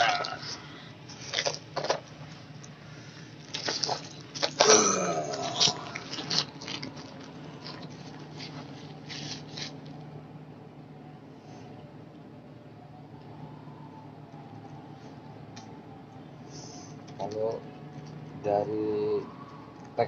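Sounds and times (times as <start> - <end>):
low steady hum: 0.0 - 20.0
plastic bag crinkling: 5.3 - 9.7.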